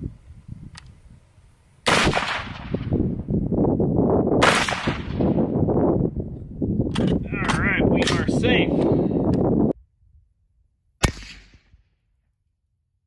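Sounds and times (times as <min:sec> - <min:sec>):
rifle shots with rumble: 0:01.8 - 0:03.0, 0:04.4 - 0:05.6, 0:11.0 - 0:12.0.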